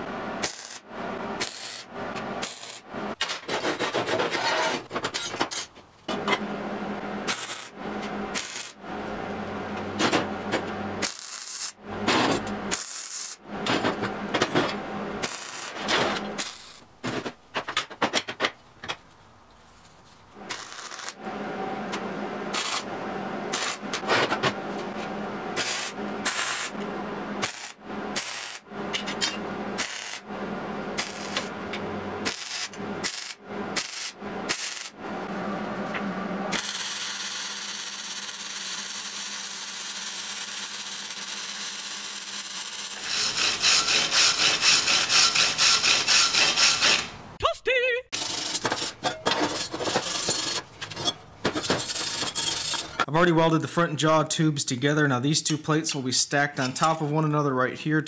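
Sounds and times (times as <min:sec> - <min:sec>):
wire brush scrubbing steel: 0:40.2 - 0:47.2.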